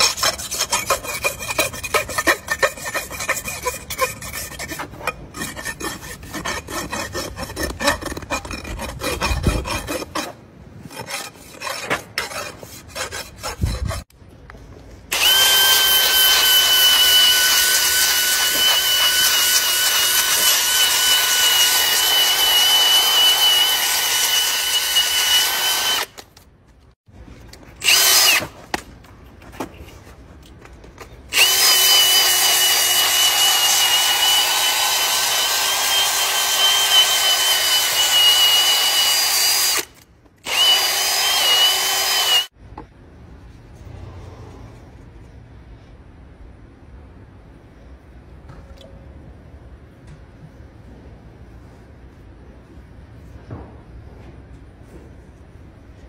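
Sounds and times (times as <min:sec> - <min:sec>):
rasp scraping hoof: 0:00.0 - 0:14.1
electric power tool whine: 0:15.1 - 0:26.2, 0:31.3 - 0:42.5.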